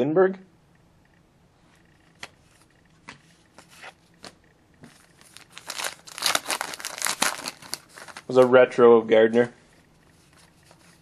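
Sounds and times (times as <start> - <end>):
card pack wrapper crinkling and tearing: 5.2 - 8.5.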